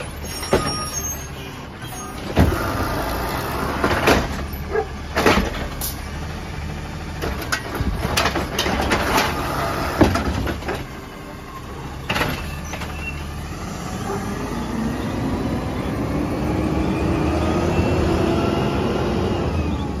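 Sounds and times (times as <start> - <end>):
trash cart knocks and bangs: 3.8 - 4.5, 5.1 - 5.8, 7.2 - 10.9
truck engine revving: 11.8 - 20.0.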